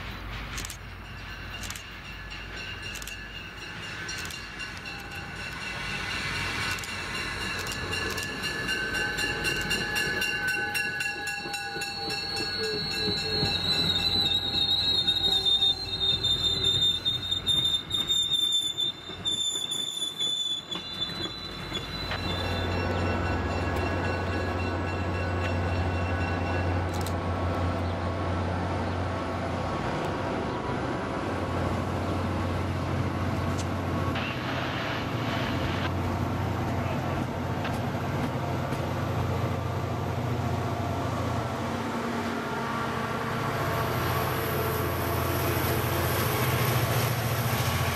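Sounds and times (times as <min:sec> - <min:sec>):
train wheels squealing: 0:00.0 - 0:27.1
train coaches rumbling past: 0:00.0 - 0:47.9.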